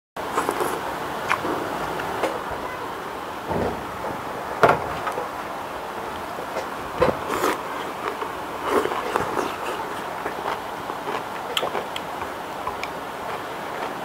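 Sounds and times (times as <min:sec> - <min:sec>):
noodles slurped and chewed: 0:00.3 - 0:01.4, 0:07.2 - 0:14.0.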